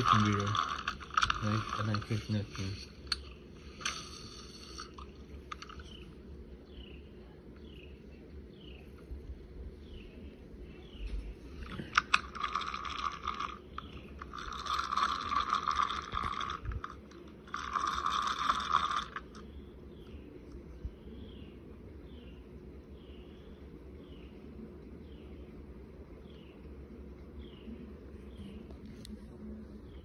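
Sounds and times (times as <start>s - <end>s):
fishing reel ratchety whir: 0.0s - 5.9s, 11.9s - 19.5s.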